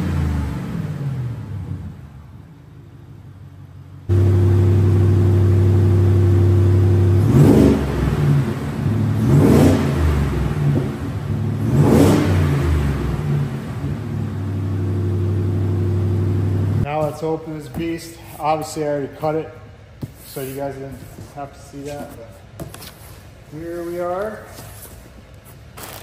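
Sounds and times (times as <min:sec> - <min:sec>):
car engine idling and revving: 0:00.0 - 0:16.9.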